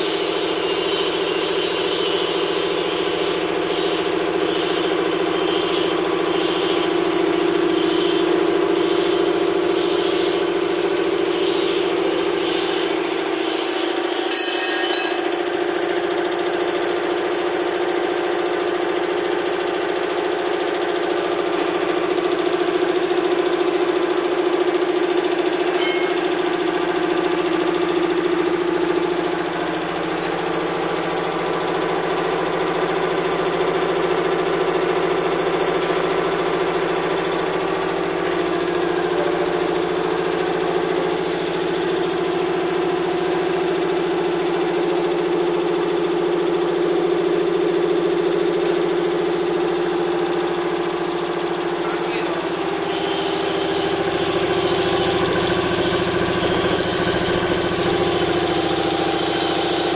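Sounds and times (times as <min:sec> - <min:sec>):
air compressor running: 0:00.0 - 0:59.9.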